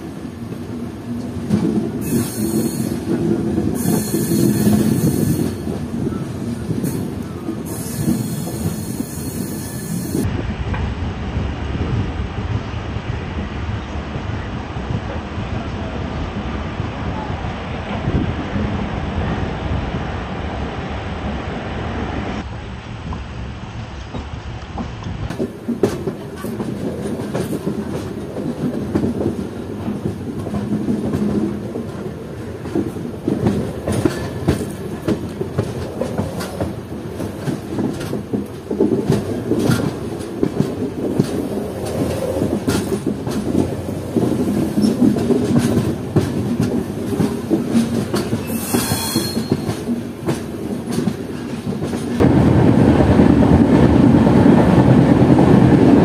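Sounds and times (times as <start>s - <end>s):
train rumbling: 0.0s - 56.0s
wheels clacking over rail joints: 24.0s - 56.0s.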